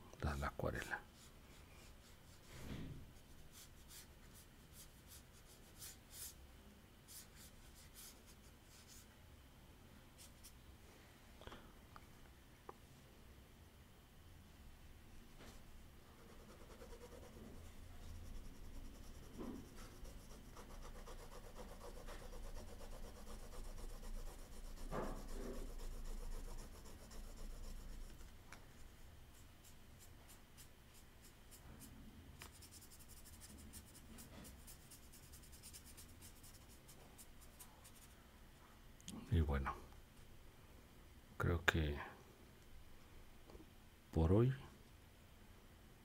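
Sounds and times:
fingers rubbing paper: 16.2s - 28.2s
pen scratching on paper: 16.2s - 28.2s, 32.4s - 38.1s.

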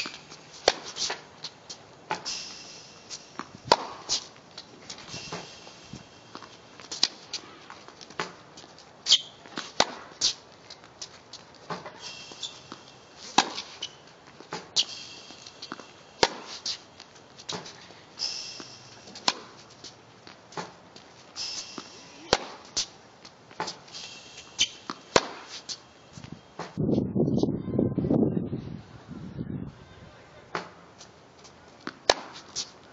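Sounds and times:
tennis balls struck and bouncing: 0.0s - 25.9s, 26.5s - 26.8s, 30.5s - 30.8s, 31.4s - 32.9s
short high squeaks: 9.0s - 10.4s, 12.0s - 14.1s, 14.8s - 19.9s, 21.4s - 22.9s, 23.6s - 25.9s.

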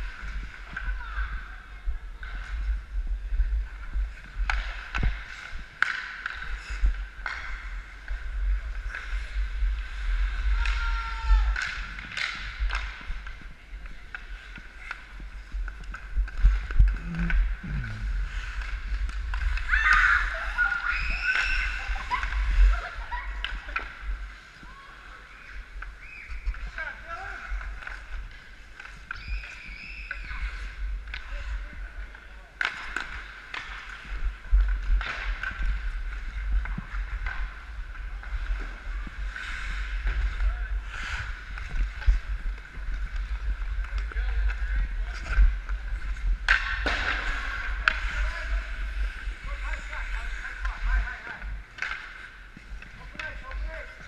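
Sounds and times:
skate blades scraping ice: 3.7s - 54.0s
hockey sticks and puck clicking: 3.9s - 26.9s, 27.5s - 40.4s, 41.0s - 54.0s
low rumble of movement: 6.4s - 20.8s
low rumble of moving camera: 6.5s - 20.8s, 34.0s - 51.8s.

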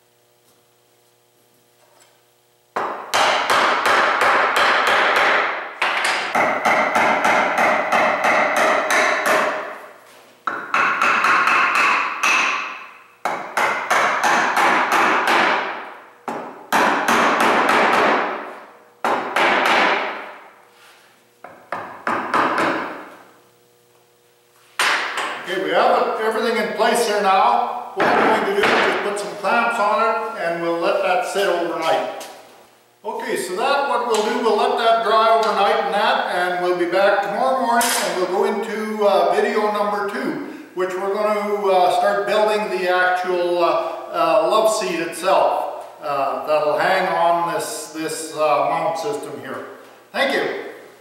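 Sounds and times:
hammer tapping wood: 2.8s - 9.6s.

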